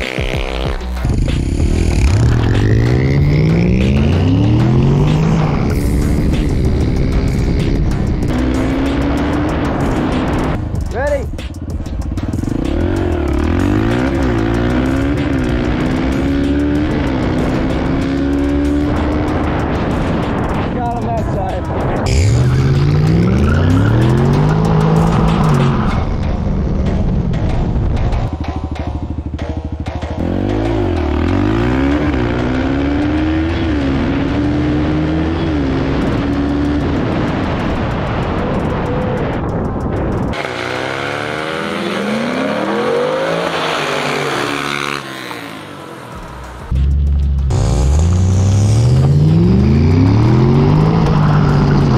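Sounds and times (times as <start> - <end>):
dirt bike engine accelerating: 0.0 - 51.9
dirt bike engine revving hard: 40.4 - 45.8.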